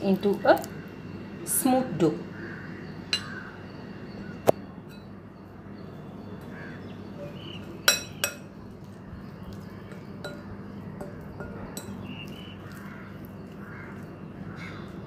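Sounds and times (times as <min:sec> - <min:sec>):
spoon clinking on glass: 0:07.9 - 0:08.5, 0:10.2 - 0:12.0.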